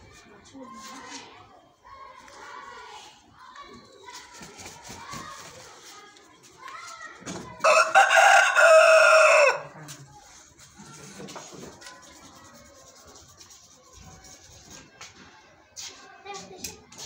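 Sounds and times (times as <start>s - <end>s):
rooster crowing: 7.6s - 9.7s.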